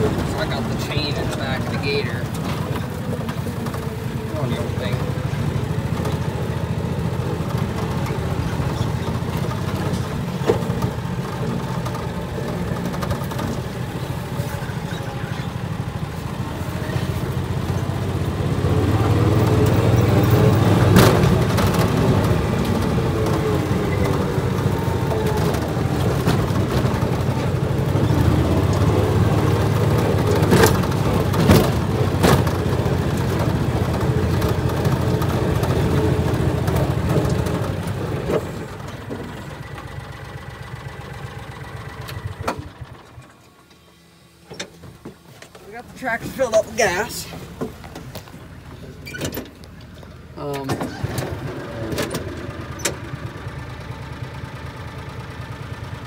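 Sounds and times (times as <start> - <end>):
sharp knocks and rattles: 0.0 - 15.0, 18.9 - 40.1
utility vehicle engine running: 0.0 - 56.0.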